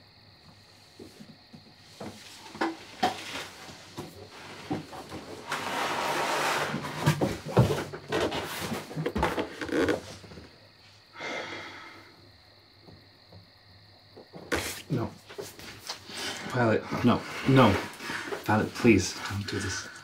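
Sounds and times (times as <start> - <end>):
clothes rustling: 1.0 - 10.6
knocks and bumps against fixtures: 6.8 - 10.4.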